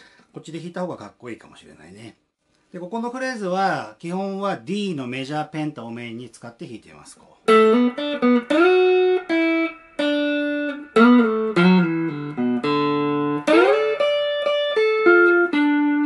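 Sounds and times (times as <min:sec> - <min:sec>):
electric guitar lick: 0:07.5 - 0:16.0.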